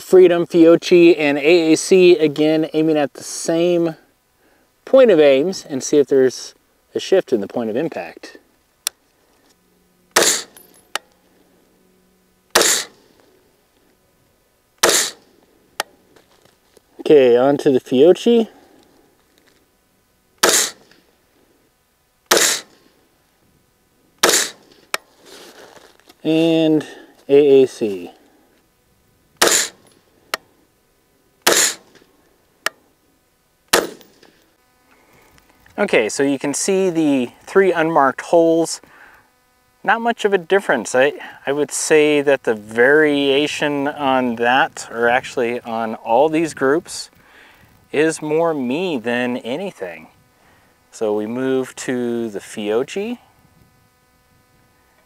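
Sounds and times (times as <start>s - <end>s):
rifle shots: 10.2s - 10.6s, 12.5s - 13.1s, 14.8s - 15.3s, 20.4s - 21.0s, 22.3s - 22.9s, 24.2s - 24.8s, 29.4s - 29.8s, 31.4s - 32.0s, 33.7s - 34.3s
sharp click: 12.5s - 13.0s, 20.4s - 21.0s, 22.3s - 22.8s, 24.2s - 25.1s, 31.4s - 32.0s, 33.7s - 34.4s.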